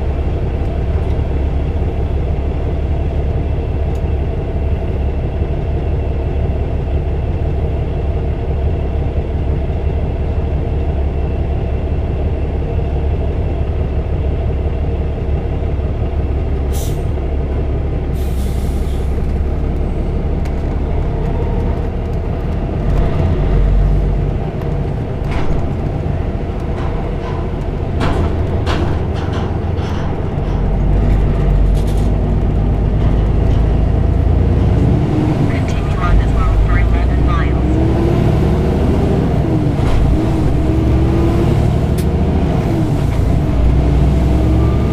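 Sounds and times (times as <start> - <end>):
truck diesel engine: 0.0 - 44.9
knocks and rattles on ramp: 20.4 - 35.1.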